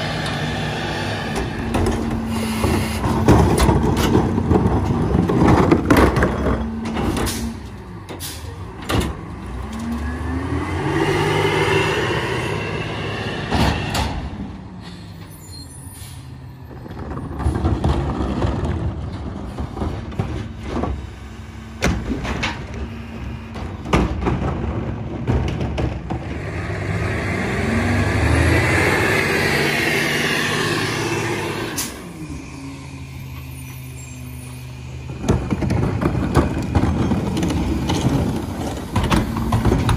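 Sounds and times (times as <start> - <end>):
truck engine revving: 0.0 - 14.6, 24.5 - 39.9
hydraulics whining: 0.0 - 18.0, 26.0 - 39.9.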